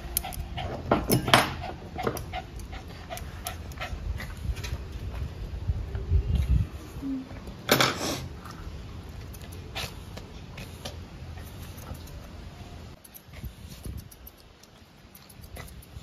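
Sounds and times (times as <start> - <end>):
dog breathing and snorting: 9.4 - 12.1.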